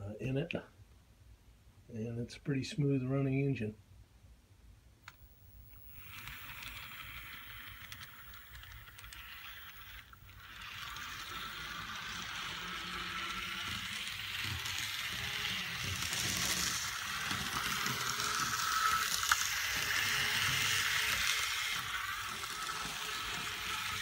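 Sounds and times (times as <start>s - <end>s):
small motor and gears whirring: 5.1s - 24.0s.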